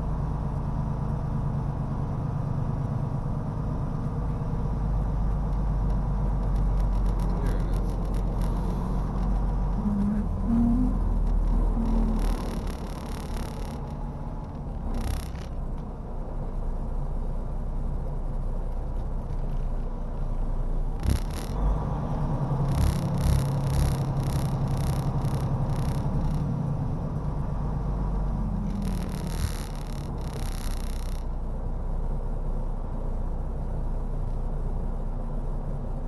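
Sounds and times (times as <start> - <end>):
truck diesel engine running: 0.0 - 36.0.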